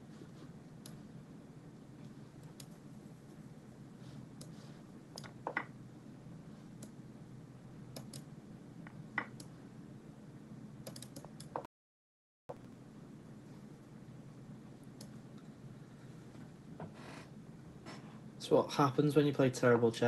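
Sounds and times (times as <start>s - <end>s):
low steady hum: 0.0s - 11.7s, 12.5s - 20.0s
computer mouse clicks: 7.9s - 8.3s, 10.8s - 11.7s.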